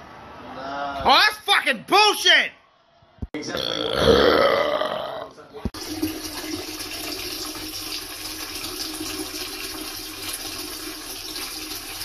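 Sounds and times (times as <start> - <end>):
urine stream splashing in toilet: 5.8 - 12.0.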